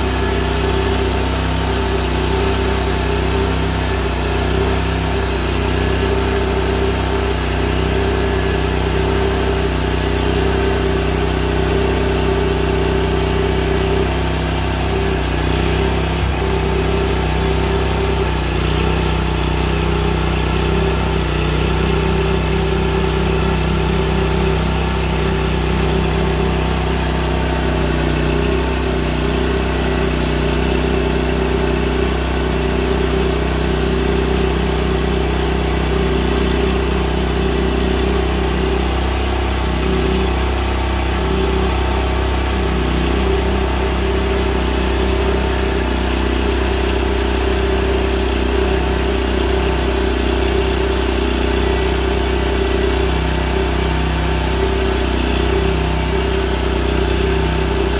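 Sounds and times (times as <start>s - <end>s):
band sawmill cutting log: 0.0s - 57.9s.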